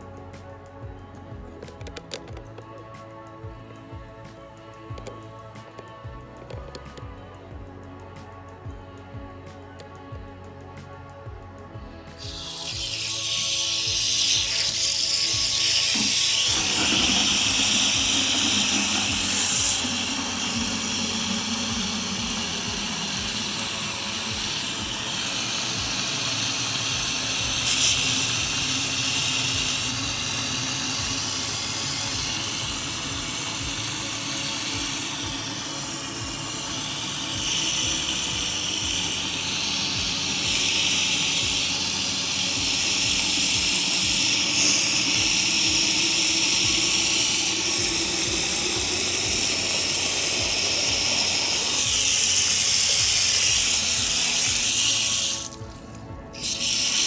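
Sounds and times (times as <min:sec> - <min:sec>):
water pouring into plastic jug: 0:12.2 - 0:57.0.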